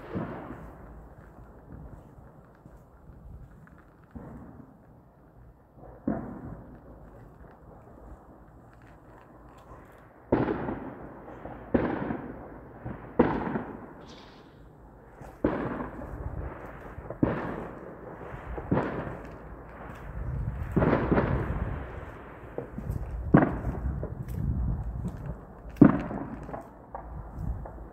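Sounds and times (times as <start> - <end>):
explosive bangs echoing: 0.0 - 1.3, 10.3 - 27.9.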